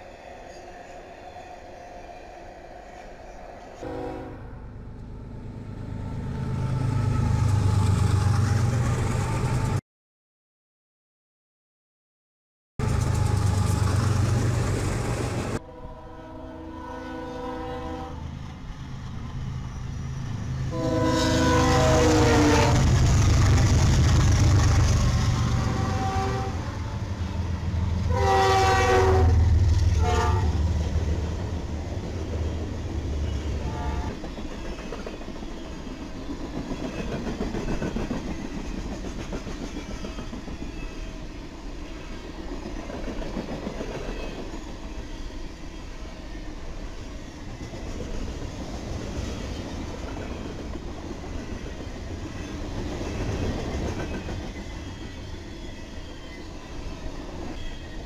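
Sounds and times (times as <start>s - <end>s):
train horn blasts: 3.8s - 4.6s, 15.6s - 18.3s, 20.7s - 22.9s, 25.5s - 27.1s, 28.0s - 30.6s, 33.5s - 34.2s
train cars clattering on rails: 47.6s - 55.3s.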